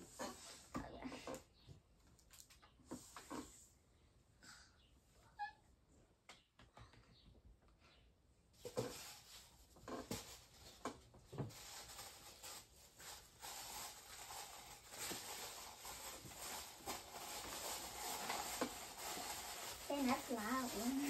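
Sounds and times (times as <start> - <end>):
toilet paper roll rustling: 8.6 - 21.0.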